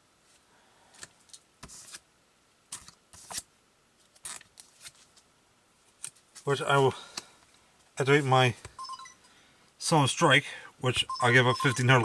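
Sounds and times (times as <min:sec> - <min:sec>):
cards rustling and scraping on mat: 0:00.9 - 0:02.0, 0:02.7 - 0:05.2.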